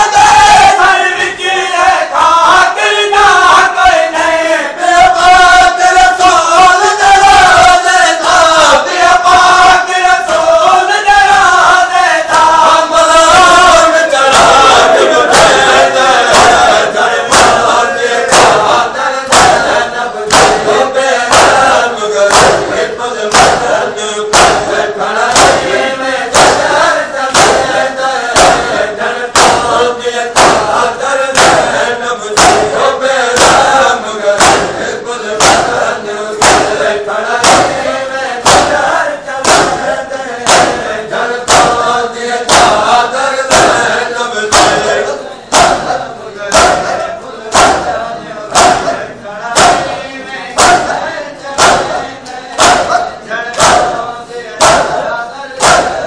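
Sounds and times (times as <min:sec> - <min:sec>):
crowd of men chanting in unison: 0:00.0 - 0:56.0
unison chest-beating strikes: 0:13.2 - 0:56.0.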